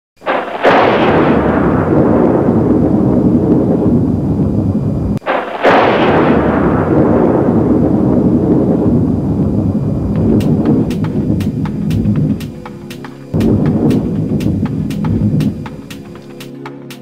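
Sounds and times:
deep cinematic boom: 5.9 - 12.6, 13.4 - 15.8.

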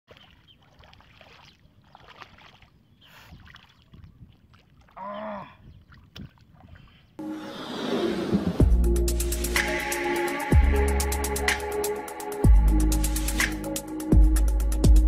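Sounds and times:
hands splashing in shallow water: 0.1 - 5.0.

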